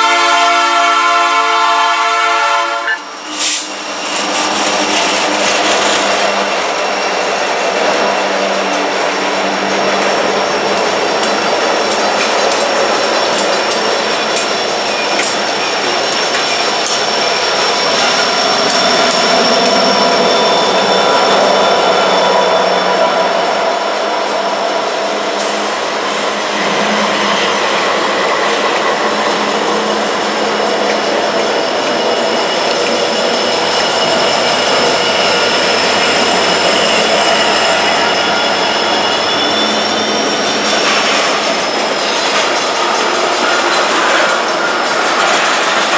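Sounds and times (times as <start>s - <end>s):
diesel locomotive engines running: 0.0s - 45.9s
train wheels rolling on rails: 0.0s - 45.9s
high-pitched whine: 12.6s - 44.7s.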